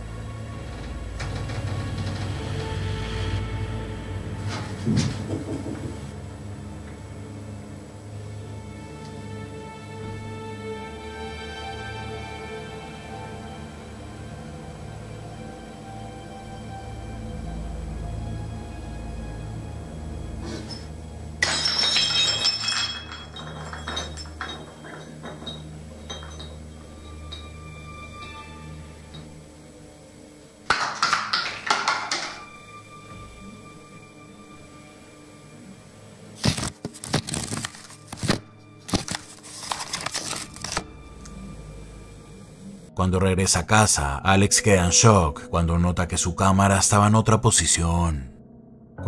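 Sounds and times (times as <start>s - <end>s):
glass pieces clinking: 20.6s - 28.4s, 30.7s - 32.4s
glass breaking: 21.4s - 27.5s.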